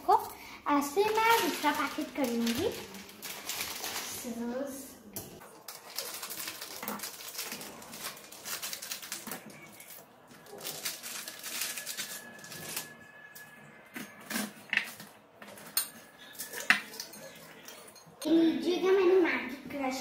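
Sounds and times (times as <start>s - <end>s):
dry noodles crunching in plastic packet: 1.0s - 4.3s, 5.4s - 13.0s.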